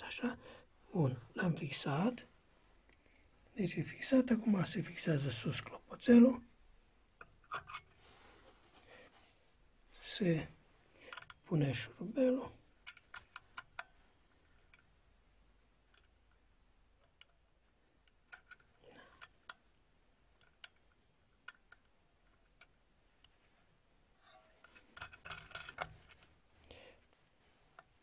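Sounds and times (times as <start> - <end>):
small metallic clicks and taps: 11.0 - 11.5, 12.7 - 14.9, 15.8 - 23.5, 24.4 - 26.8.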